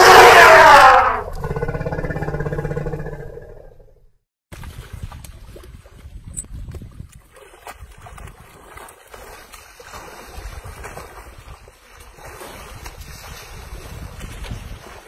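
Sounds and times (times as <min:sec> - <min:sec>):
mud and water sloshing: 0:04.5 - 0:15.0
wind buffeting microphone: 0:04.6 - 0:08.7, 0:10.3 - 0:15.0.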